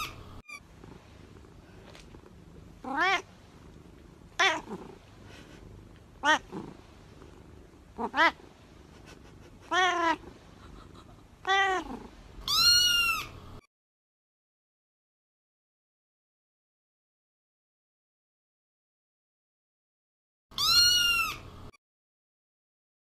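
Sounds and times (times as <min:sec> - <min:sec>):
cat meowing: 0:00.0 - 0:00.7, 0:02.8 - 0:03.3, 0:04.4 - 0:04.8, 0:06.2 - 0:06.6, 0:08.0 - 0:08.5, 0:09.6 - 0:10.4, 0:11.4 - 0:13.6, 0:20.6 - 0:21.7.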